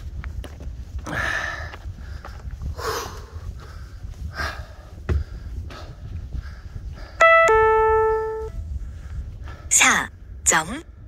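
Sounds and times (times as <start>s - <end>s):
footsteps on a trail: 0.0s - 7.2s
electronic bell-like chime: 7.2s - 8.6s.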